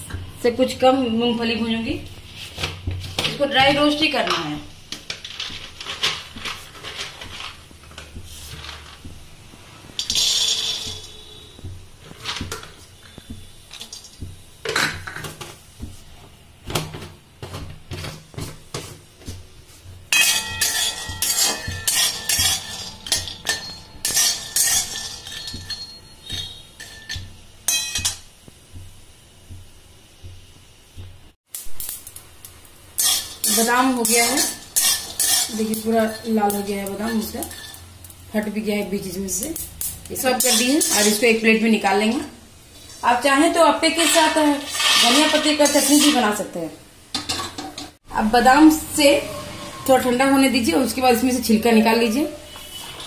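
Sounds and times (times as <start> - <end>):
spatula scraping peanuts in pan: 5.0 - 9.2, 9.8 - 14.2, 17.9 - 27.9, 32.9 - 38.0, 39.5 - 41.5, 42.8 - 46.4, 52.4 - 53.0
peanuts poured into metal pan: 10.0 - 11.2, 44.0 - 46.3.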